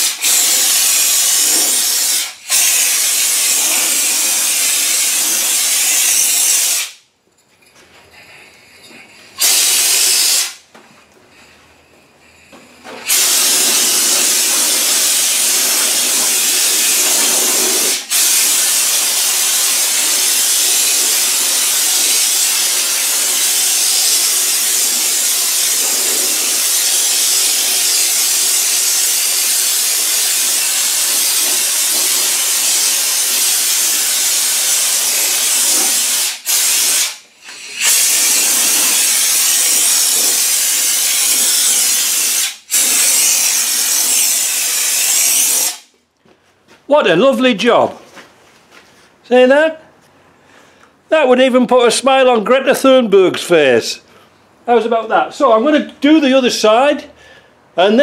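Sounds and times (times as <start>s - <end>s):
spray gun hissing: 9.4s - 10.6s, 13.1s - 45.9s.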